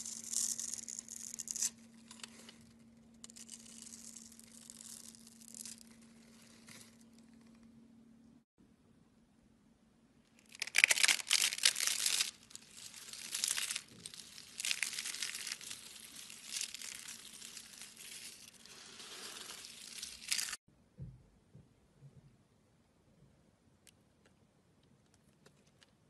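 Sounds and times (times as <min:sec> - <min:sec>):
dry flakes crackling in hand: 0:10.4 - 0:20.6.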